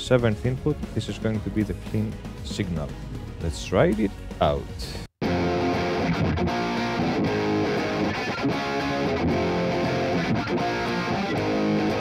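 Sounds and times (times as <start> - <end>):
distorted electric guitar: 5.2 - 12.0.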